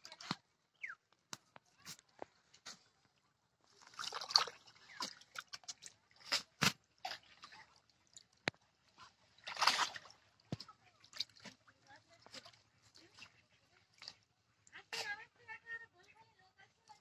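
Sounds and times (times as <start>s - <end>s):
hands splashing in shallow water: 3.7s - 8.4s, 9.4s - 11.8s
water drips: 3.8s - 14.8s.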